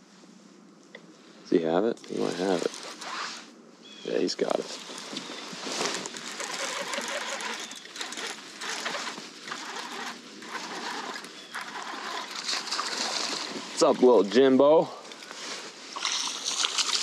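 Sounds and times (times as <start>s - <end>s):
fishing reel whirring: 4.8s - 13.6s, 16.0s - 17.0s.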